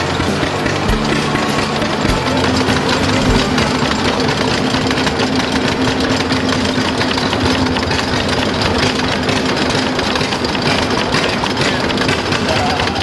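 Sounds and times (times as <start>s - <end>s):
sifting screen rattling: 0.0s - 13.0s
small gas engine running: 0.0s - 13.0s.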